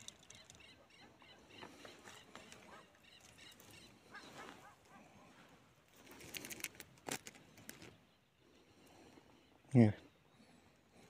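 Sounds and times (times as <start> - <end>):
faint bird calls: 0.0 - 6.4.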